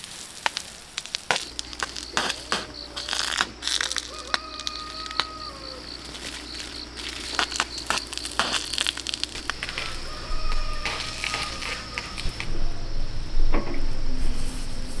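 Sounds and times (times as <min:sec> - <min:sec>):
clicks and rustling: 0:00.0 - 0:10.0
rooster crowing: 0:01.3 - 0:13.0.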